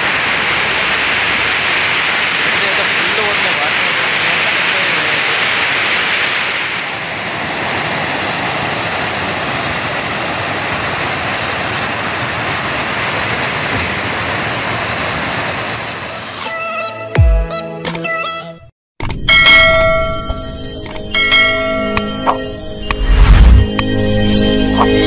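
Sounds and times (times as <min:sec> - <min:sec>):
water rushing over spillway: 0:00.0 - 0:16.4.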